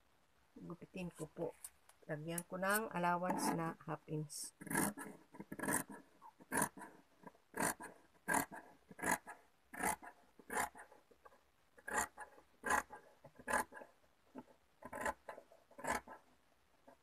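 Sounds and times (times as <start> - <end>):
shears snipping fabric: 1.1 - 3.8.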